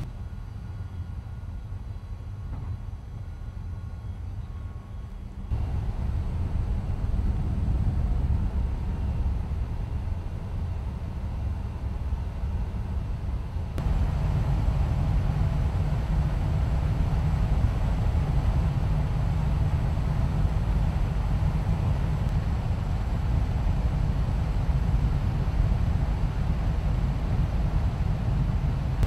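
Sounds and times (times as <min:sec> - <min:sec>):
aircraft engine rumble: 0:00.0 - 0:29.0
rushing wind: 0:05.5 - 0:29.0.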